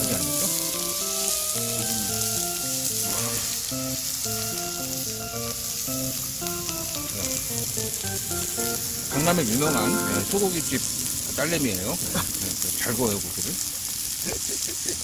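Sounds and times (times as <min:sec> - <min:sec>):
simple tune of short notes: 0:00.0 - 0:10.9
meat sizzling on griddle: 0:00.0 - 0:15.0.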